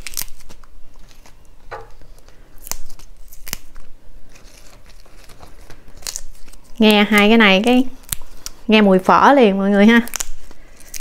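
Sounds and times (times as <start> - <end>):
herb stems snapping: 0.0 - 3.9, 6.0 - 7.3, 8.0 - 8.6, 10.0 - 11.0
leaves rustling: 0.0 - 11.0.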